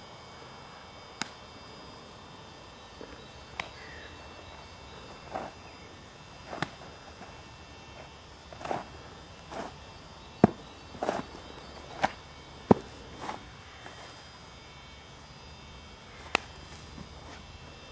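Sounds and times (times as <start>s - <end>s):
faint outdoor hiss: 0.0s - 17.9s
shoes scraping on dirt: 5.0s - 5.6s, 6.4s - 9.8s, 10.4s - 14.2s.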